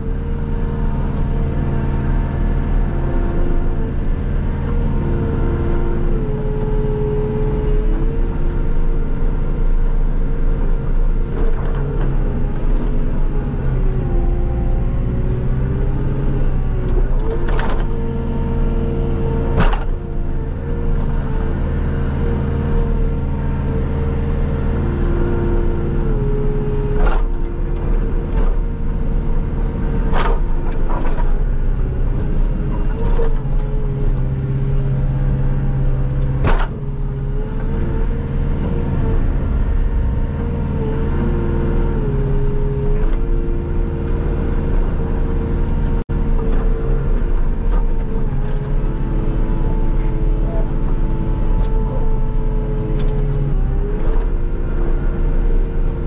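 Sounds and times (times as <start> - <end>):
diesel engine under load: 0.0 - 56.0
machine whine: 36.9 - 43.6.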